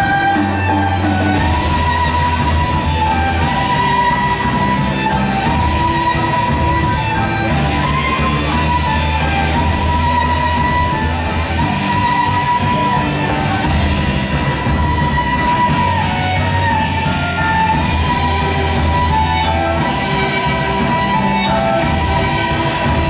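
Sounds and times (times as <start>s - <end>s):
music with steady beat: 0.0s - 23.0s.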